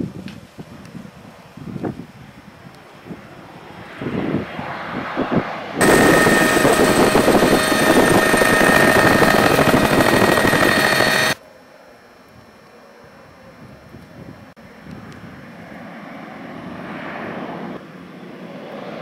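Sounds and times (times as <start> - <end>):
wind gusts on microphone: 0.0 - 11.4
turboprop plane passing low: 2.1 - 11.4, 14.6 - 19.0.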